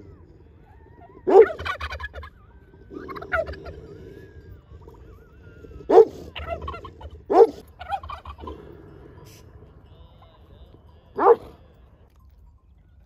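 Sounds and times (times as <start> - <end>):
turkey gobbling: 0.0 - 9.4.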